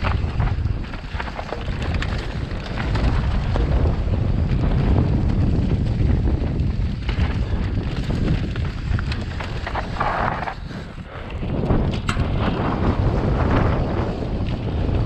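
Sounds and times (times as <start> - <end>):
tyres rumbling on dirt: 0.0 - 10.9
bike clicks and knocks: 0.0 - 15.0
wind buffeting microphone: 0.0 - 15.0.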